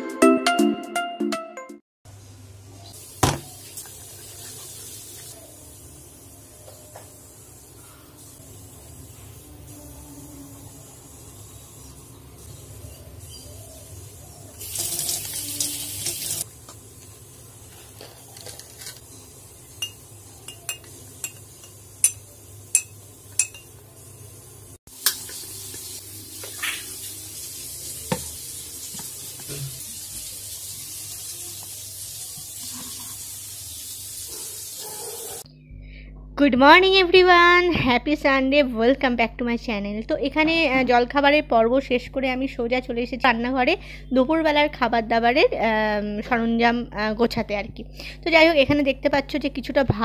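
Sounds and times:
spoon clinking against bowl: 0:19.8 - 0:23.8
spoon clinking on glass mug: 0:19.8 - 0:23.8.

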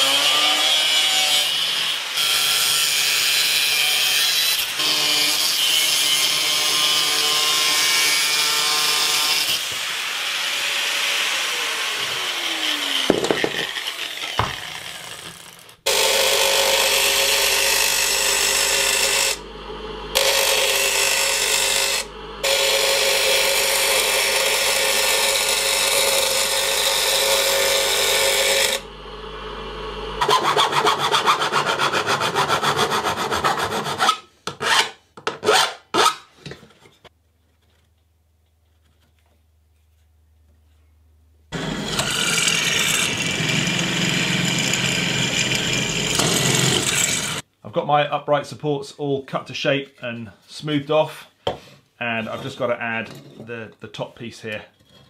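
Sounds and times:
angle grinder cutting metal: 0:00.0 - 0:34.8, 0:41.6 - 0:47.4
bench grinder grinding metal: 0:00.0 - 0:35.0, 0:41.6 - 0:47.4
hand file rasping metal: 0:30.2 - 0:36.2.

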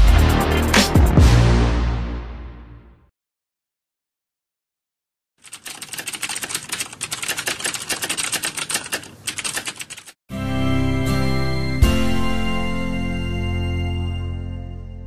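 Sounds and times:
music with low bass: 0:00.0 - 0:02.5
typewriter key clicks: 0:05.5 - 0:10.2.

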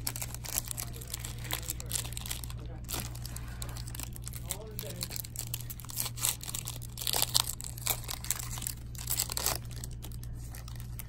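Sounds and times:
steady low hum: 0:00.0 - 0:11.0
wrapper tearing and crinkling: 0:00.0 - 0:11.0.

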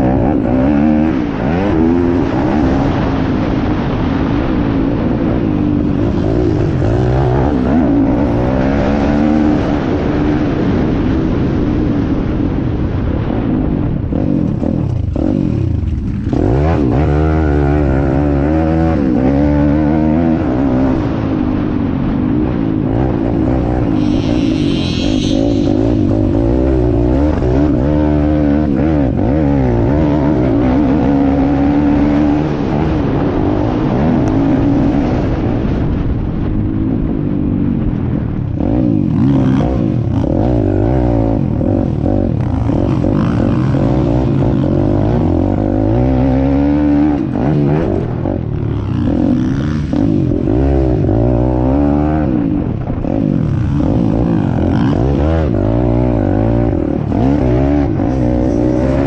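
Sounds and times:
motorbike engine revving: 0:00.0 - 0:59.0.

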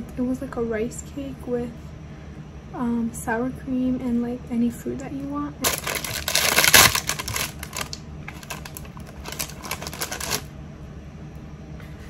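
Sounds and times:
plastic bag crinkling: 0:05.6 - 0:10.5.

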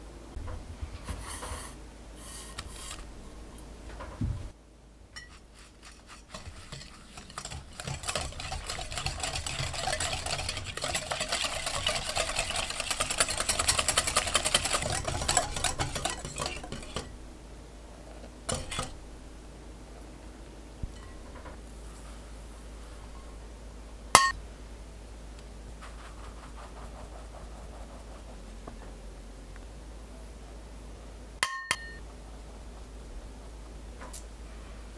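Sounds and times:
whisk clicking against glass bowl: 0:05.2 - 0:17.1, 0:18.5 - 0:19.0.

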